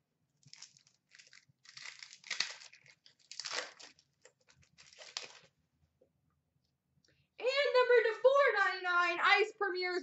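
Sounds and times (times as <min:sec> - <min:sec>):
foil wrapper crinkling and tearing: 0:00.4 - 0:05.6.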